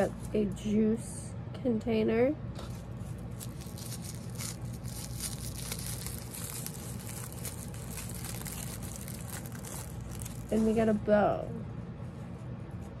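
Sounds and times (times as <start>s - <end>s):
plastic packet crinkling and tearing: 3.2s - 10.8s.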